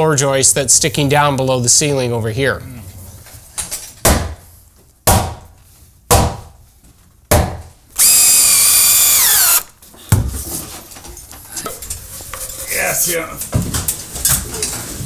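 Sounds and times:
power drill driving a fastener: 8.0 - 9.7.

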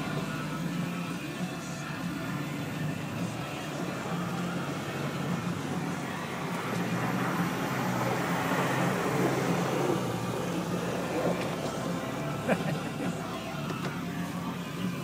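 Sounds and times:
truck engine revving: 0.0 - 15.0
vehicle engine low hum: 0.0 - 15.0
tires spinning in mud: 3.7 - 13.6.

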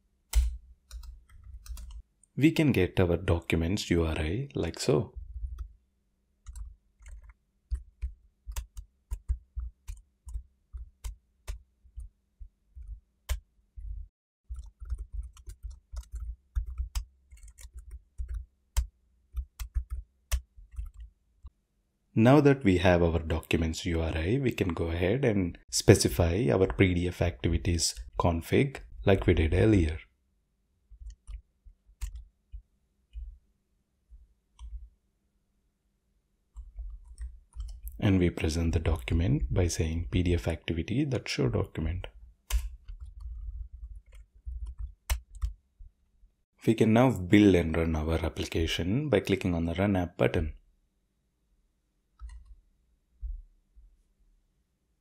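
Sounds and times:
typing on a computer keyboard: 0.3 - 2.0, 6.4 - 12.1, 14.5 - 21.1, 31.0 - 32.3, 42.5 - 45.6.

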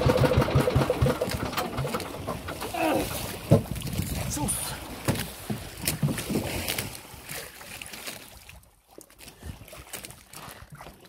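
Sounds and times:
water noise around boat: 0.0 - 11.0
wind: 0.0 - 11.0
knocks on boat: 3.4 - 3.8, 5.0 - 6.4.

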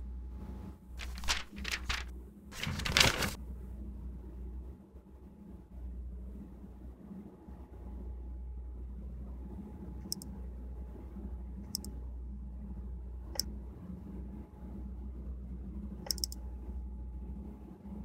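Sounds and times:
steady low hum: 0.0 - 18.0
computer mouse clicking: 10.0 - 10.3, 11.7 - 11.9, 16.0 - 16.4.

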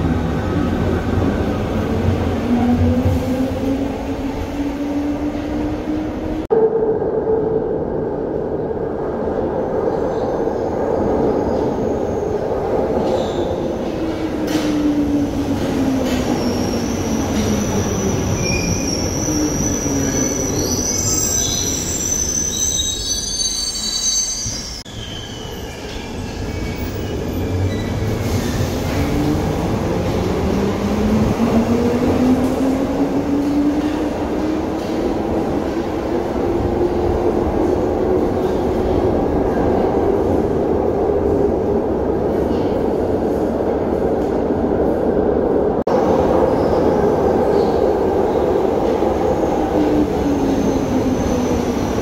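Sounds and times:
train wheel squeal: 16.1 - 28.0.

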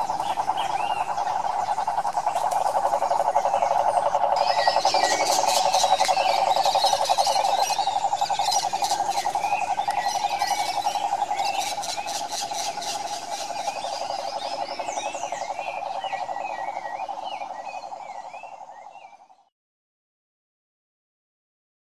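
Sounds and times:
toads trilling: 0.0 - 19.4
birds chirping: 0.0 - 19.5.

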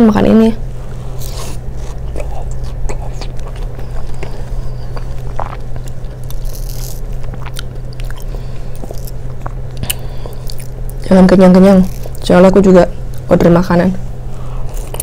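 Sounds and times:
steady low hum: 0.0 - 15.0
person chewing: 1.0 - 11.0, 11.8 - 12.3, 14.6 - 15.0.

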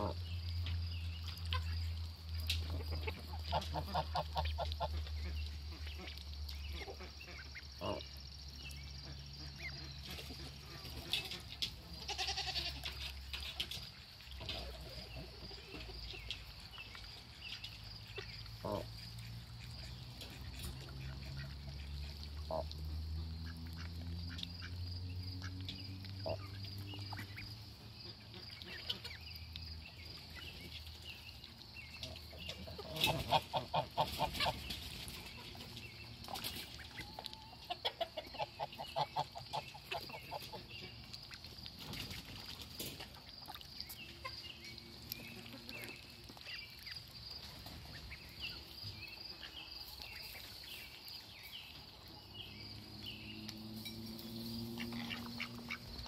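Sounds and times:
ducks quacking: 0.0 - 0.2, 2.6 - 8.2, 17.4 - 29.2, 32.0 - 41.1, 54.6 - 56.0.

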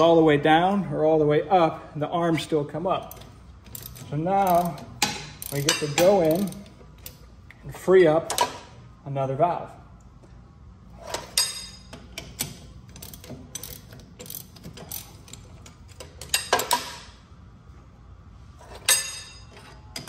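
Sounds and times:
ratchet wrench clicks: 3.1 - 7.2, 12.2 - 15.4
ringing metal clanks: 18.8 - 19.8.

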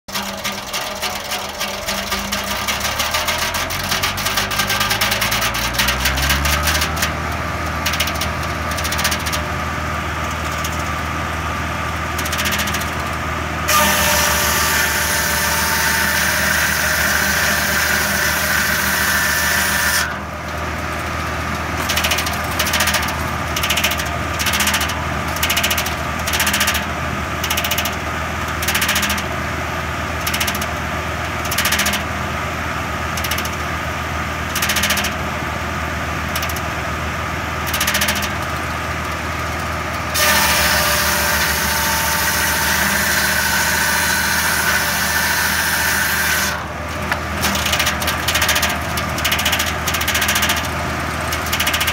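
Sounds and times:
circular saw blade ripping wood: 0.1 - 7.2, 13.7 - 20.3, 40.1 - 50.7
tractor engine drone: 0.1 - 51.9.

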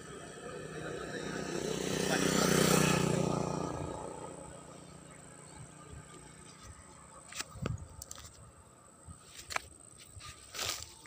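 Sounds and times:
rustles in grass and leaves: 6.0 - 11.0.

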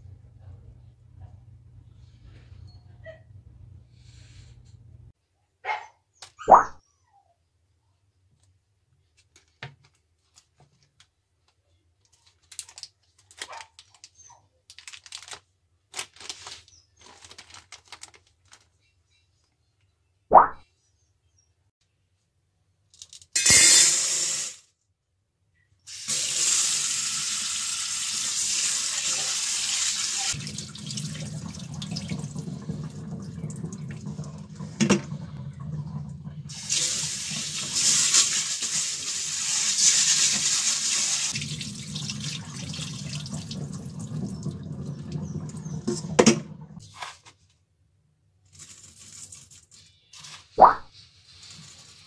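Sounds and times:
tap water running into metal bowl: 25.9 - 46.8.

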